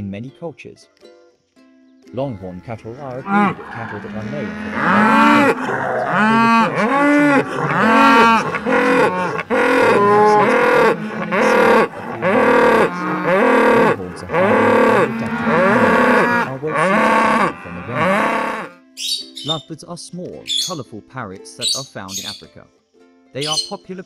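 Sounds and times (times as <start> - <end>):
cattle mooing: 2.9 - 18.8.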